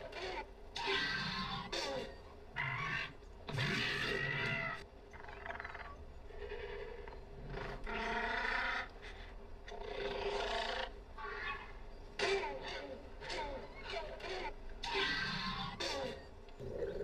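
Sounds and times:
faint steady drone: 0:00.0 - 0:17.0
dinosaur bleat-like cries: 0:09.9 - 0:16.2.

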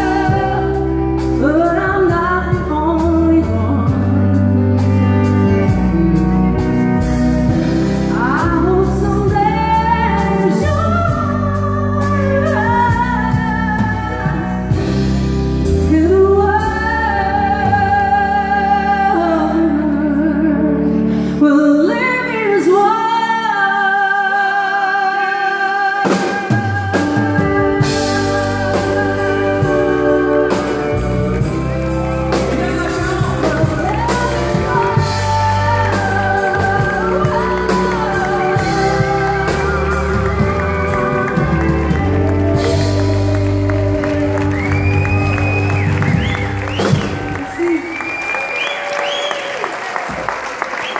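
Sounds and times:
woman singing with vibrato: 0:00.0 - 0:04.7, 0:08.0 - 0:14.6, 0:15.7 - 0:44.8
drums: 0:00.0 - 0:19.6, 0:25.9 - 0:50.9
bass: 0:00.0 - 0:50.9.

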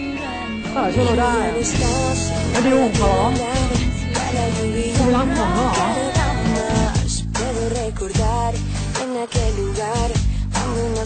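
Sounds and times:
person singing: 0:00.0 - 0:11.0
pop ballad: 0:00.0 - 0:11.0.

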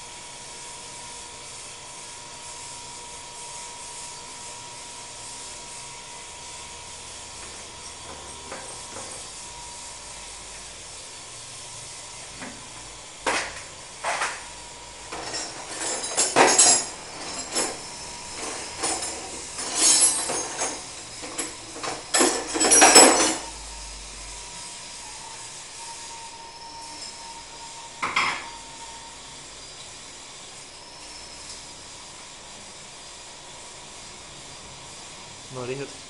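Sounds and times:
metal clanking and scraping: 0:15.1 - 0:23.6
faint steady tone: 0:22.8 - 0:30.0.

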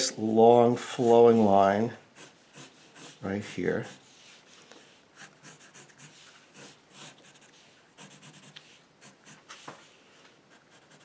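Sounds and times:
pencil scratching on paper: 0:02.2 - 0:04.4, 0:05.2 - 0:09.8, 0:10.5 - 0:11.0.

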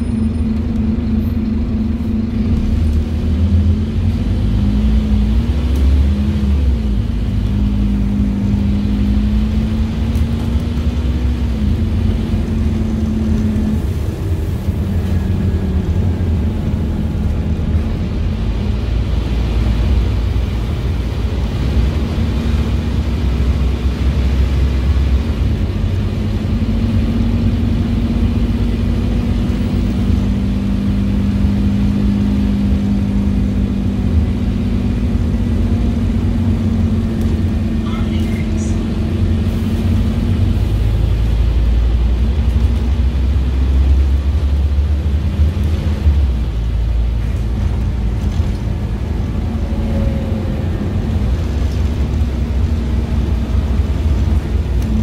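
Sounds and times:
bus engine rumble: 0:00.0 - 0:55.0.

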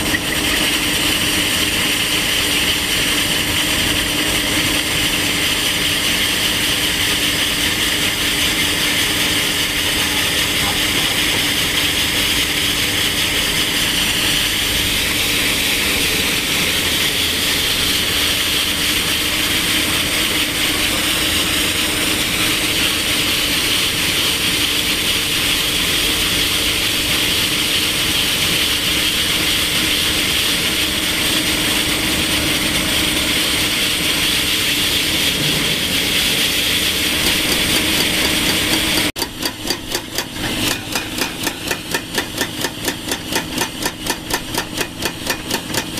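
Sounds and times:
rock saw grinding: 0:00.0 - 0:45.9
rapid hammering: 0:37.0 - 0:45.9.

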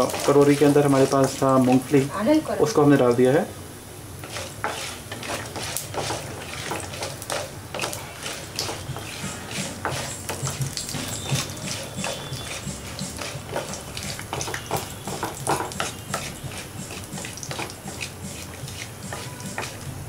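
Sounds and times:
wooden spatula scraping pan: 0:00.0 - 0:02.1, 0:04.2 - 0:20.0
nuts frying in hot oil: 0:00.0 - 0:20.0.

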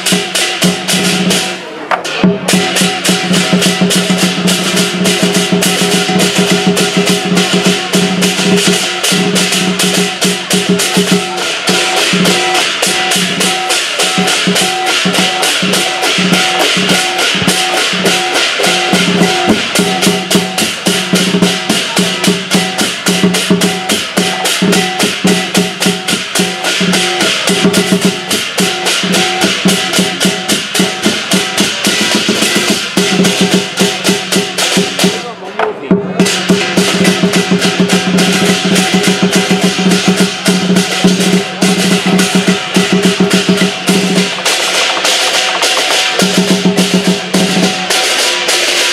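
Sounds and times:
big drum beating: 0:00.0 - 0:48.9
cymbals clashing: 0:00.0 - 0:48.9
gong: 0:02.5 - 0:35.0.

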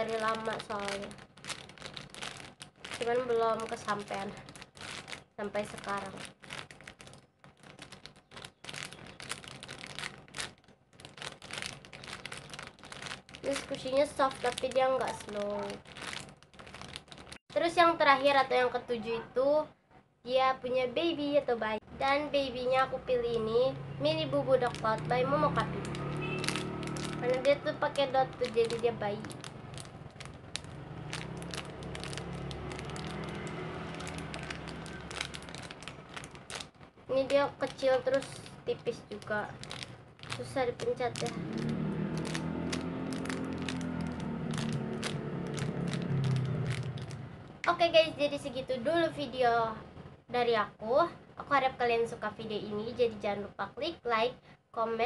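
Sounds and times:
plastic bag crinkling: 0:00.0 - 0:17.4, 0:24.4 - 0:47.8.

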